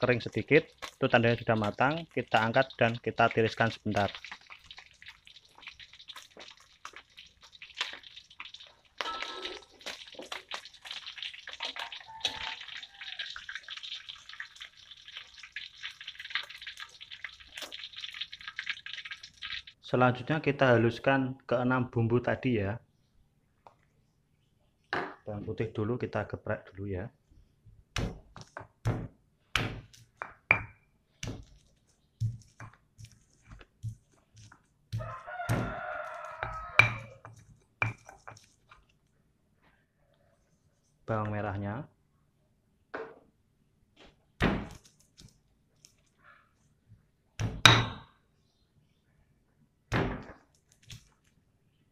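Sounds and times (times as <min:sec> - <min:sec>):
hot oil sizzling and crackling: 0:00.0 - 0:19.8, 0:31.2 - 0:38.8
rooster crowing: 0:11.8 - 0:13.4, 0:35.0 - 0:37.2.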